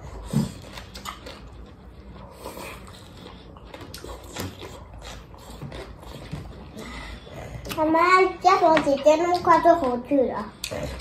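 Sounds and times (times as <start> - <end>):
slurping food: 0.0 - 7.8
chewing: 0.0 - 8.0, 9.2 - 11.0.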